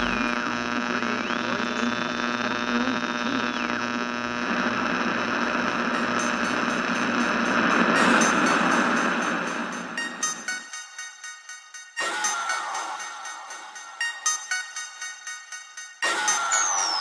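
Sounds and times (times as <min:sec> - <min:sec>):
electronic buzzing drone: 0:00.0 - 0:10.7.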